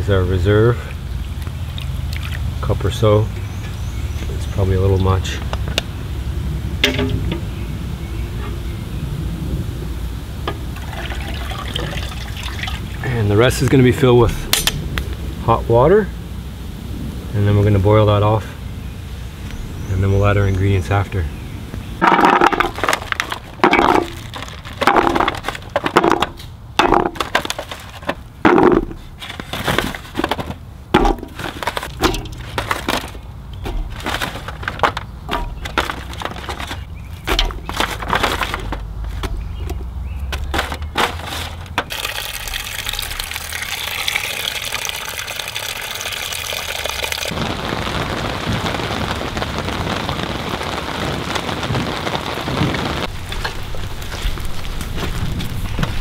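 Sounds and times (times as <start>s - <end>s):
rain hissing: 4.2s - 30.4s, 31.0s - 56.0s
vegetables dropped into metal pot: 6.8s - 7.4s, 22.0s - 42.1s.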